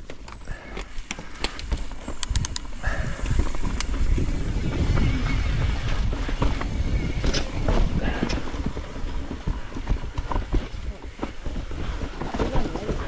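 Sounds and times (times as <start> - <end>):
sharp clicks: 0.0 - 2.8
bike rattling over bumps: 0.0 - 13.0
bike tyre rumble: 0.0 - 13.0
wind on microphone: 1.5 - 13.0.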